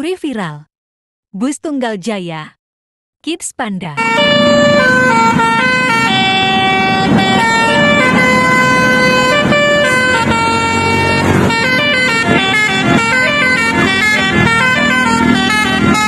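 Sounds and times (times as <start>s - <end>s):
low rumble of engines: 4.0s - 16.0s
musical bus horn playing a tune: 4.0s - 16.0s.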